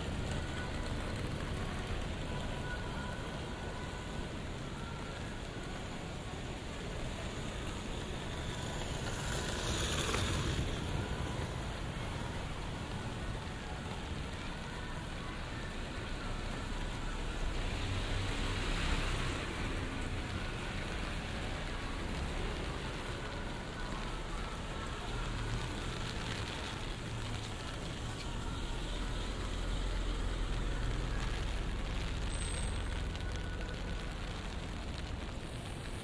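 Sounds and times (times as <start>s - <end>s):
light rain on wet street: 0.0s - 36.0s
vehicles hissing on wet road: 0.0s - 36.0s.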